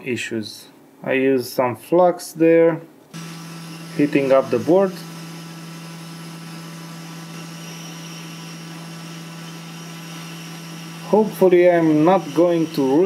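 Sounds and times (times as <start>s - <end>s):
hot air blower rushing: 3.2s - 13.0s.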